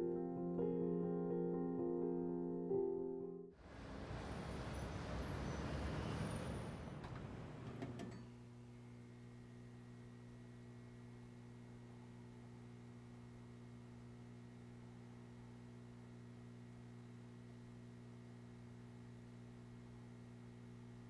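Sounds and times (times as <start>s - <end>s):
soft piano music: 0.0s - 3.6s
city street hubbub: 3.7s - 7.6s.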